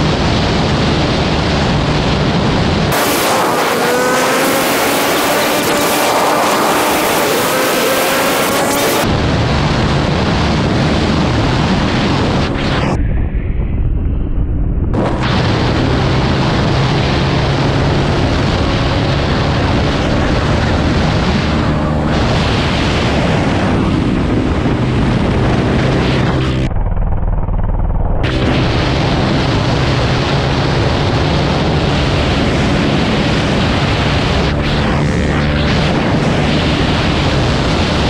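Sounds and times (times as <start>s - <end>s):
wind buffeting microphone: 0.0s - 27.4s
dirt bike engine running: 14.5s - 38.0s.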